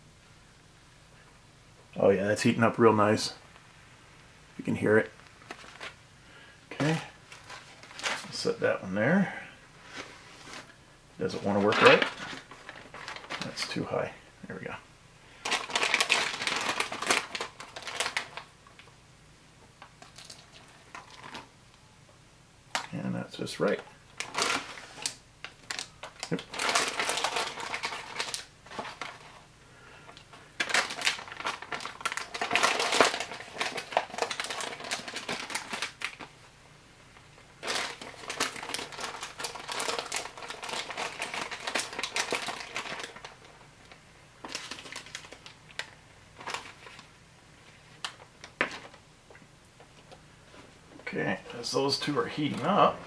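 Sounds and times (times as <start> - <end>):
plastic and foil packets crinkling: 4.6 - 6.0, 6.7 - 8.6, 9.9 - 14.7, 15.4 - 18.9, 19.8 - 21.5, 22.7 - 36.4, 37.5 - 49.0.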